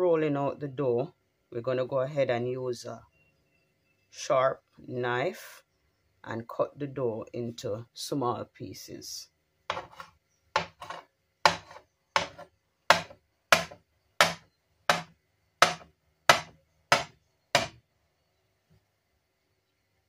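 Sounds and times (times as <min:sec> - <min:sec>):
knife chopping dough on counter: 0:09.7 - 0:17.8.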